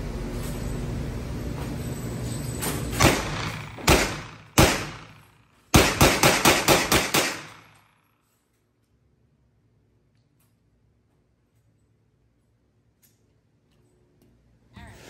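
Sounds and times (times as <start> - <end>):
steady background noise: 0.0 - 15.0
gunshots with echo: 3.0 - 7.8.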